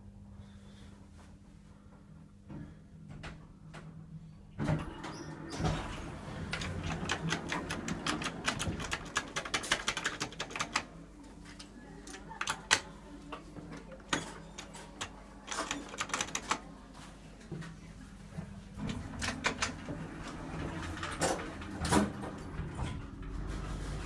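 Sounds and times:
lift clicking and rattling: 18.8 - 23.5.

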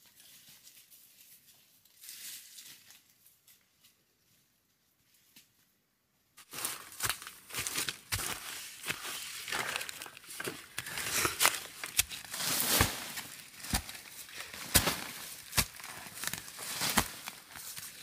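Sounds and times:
dry leaves crackling: 6.5 - 18.0
metal blade chopping into soil: 10.7 - 17.4.

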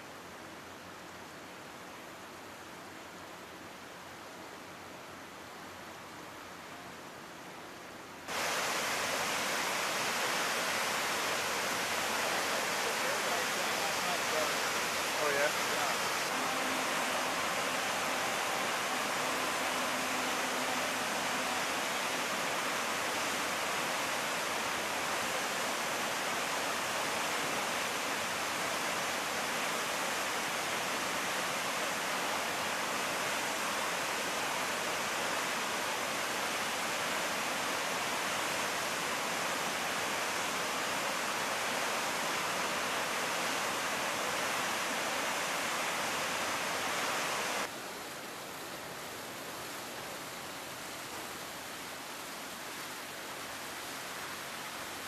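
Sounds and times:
water rushing down a dam spillway: 8.1 - 55.0
whirlpool churning: 8.3 - 38.3.

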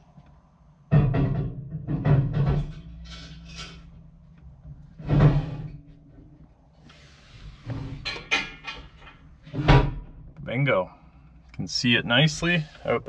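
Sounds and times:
steel hitch clanking and knocking: 0.8 - 6.4, 7.8 - 10.2.

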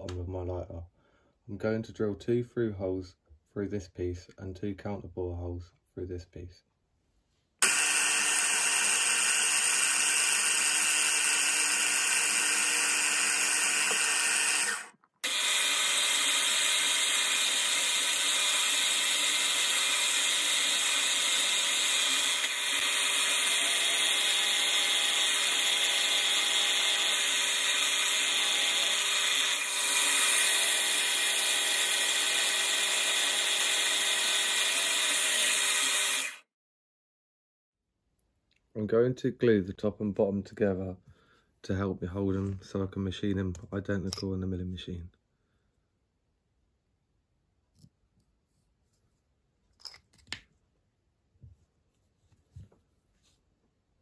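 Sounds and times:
milling machine cutting metal: 7.6 - 36.4.

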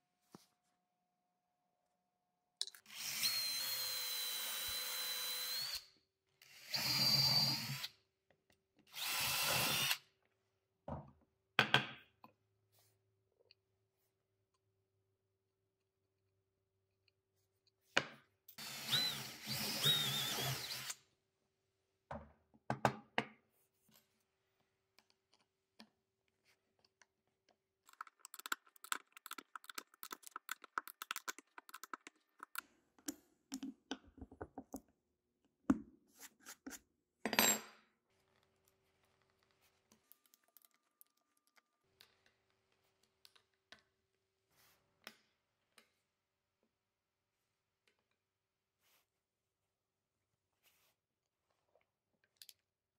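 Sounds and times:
power drill driving screw: 18.6 - 21.0.

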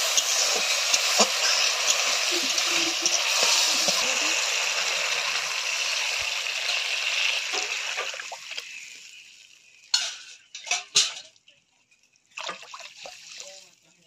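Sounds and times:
spice paste sizzling in oil: 0.0 - 10.5
metal utensils clinking: 9.9 - 11.3.

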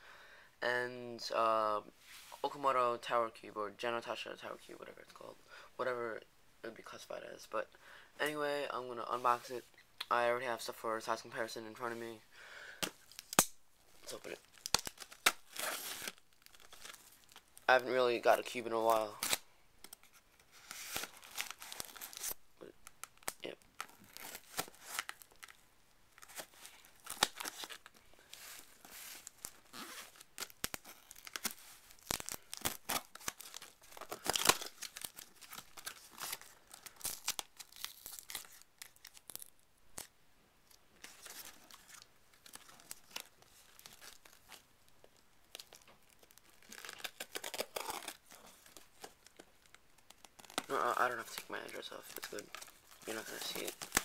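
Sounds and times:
cardboard and tape ripping: 14.5 - 17.4, 20.6 - 22.4, 26.2 - 40.1, 45.6 - 49.2, 50.1 - 54.0.

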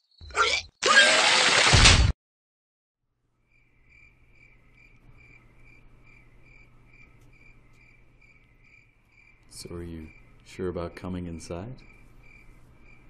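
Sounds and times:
cricket chirping faintly: 3.1 - 13.0.

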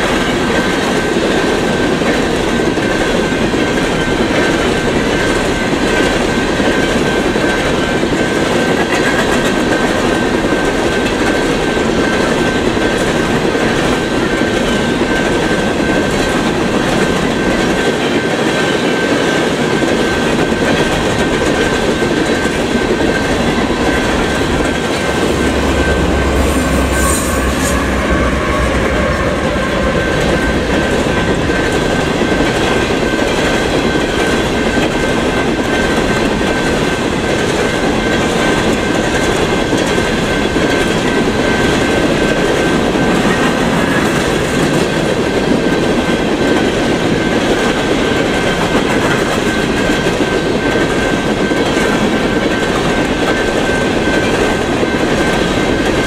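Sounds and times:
train wheels clattering over rail joints: 0.0 - 27.0, 27.7 - 56.0
thin high tone: 23.2 - 32.2.

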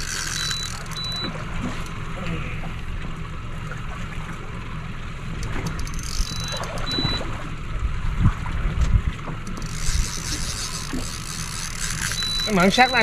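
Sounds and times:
short high beeps: 0.1 - 1.4, 6.0 - 7.3, 11.8 - 13.0.

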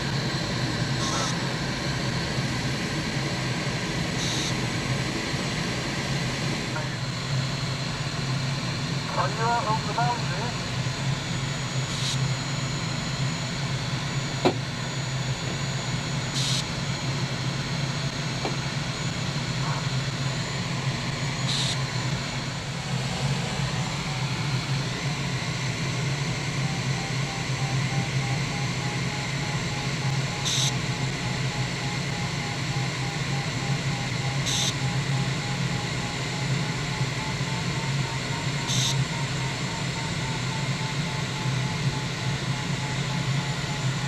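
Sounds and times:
rapid variometer beeps: 4.2 - 4.6, 26.5 - 44.0.

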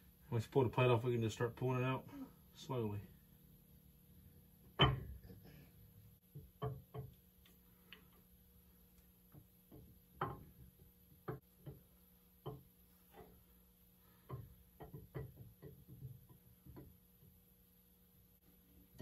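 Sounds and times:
faint metallic clicks and knocks: 8.9 - 13.6, 14.2 - 17.4.

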